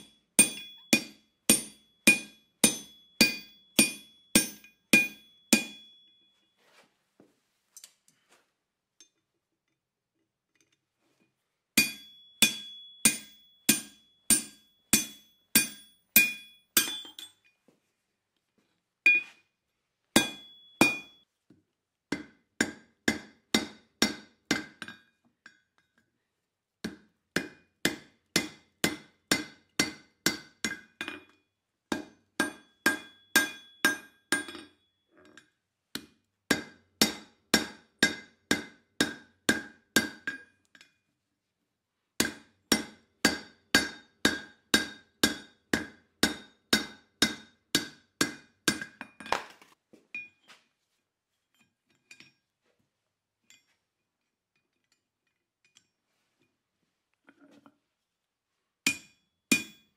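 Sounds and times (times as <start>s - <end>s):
hammer striking on anvil: 0.0s - 6.3s, 11.8s - 17.4s, 20.2s - 21.2s, 22.1s - 25.1s, 26.8s - 34.8s, 36.5s - 40.5s, 42.2s - 49.4s, 58.9s - 59.9s.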